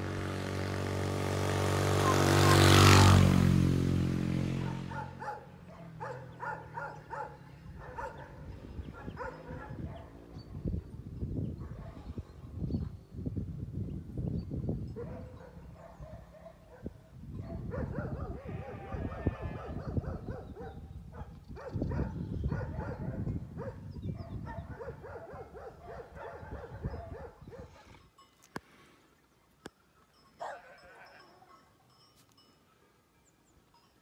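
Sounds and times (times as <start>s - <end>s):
dogs barking: 4.6s - 10.4s, 11.6s - 12.2s, 15.0s - 27.9s, 30.4s - 31.1s.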